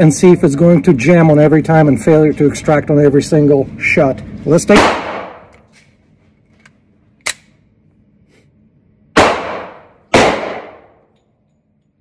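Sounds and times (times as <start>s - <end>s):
pistol shots with echo: 4.7s - 5.5s, 9.2s - 11.1s.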